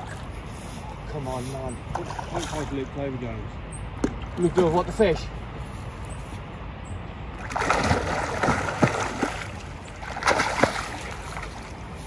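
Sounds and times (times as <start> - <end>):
fish thrashing and splashing: 7.4 - 11.9.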